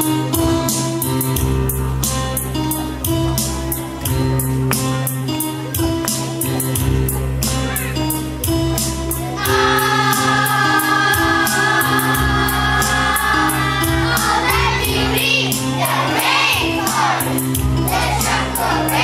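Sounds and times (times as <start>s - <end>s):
backing music with steady beat: 0.0s - 19.0s
children singing together: 9.4s - 19.0s.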